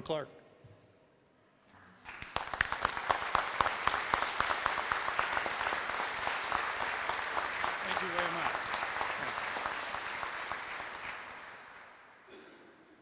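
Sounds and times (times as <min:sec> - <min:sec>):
crowd applauding: 0:02.0 - 0:12.3.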